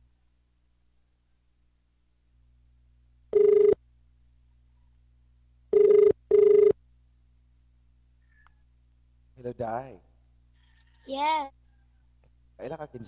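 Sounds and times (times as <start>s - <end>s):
telephone ringback tone: 3.3s - 3.8s, 5.7s - 6.8s.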